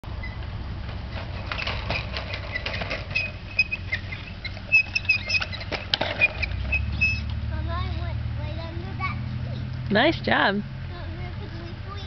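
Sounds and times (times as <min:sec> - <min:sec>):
high chirping squeaks: 0:00.2 - 0:00.5, 0:01.3 - 0:07.3
plastic tricycle rattling clicks: 0:01.2 - 0:06.8.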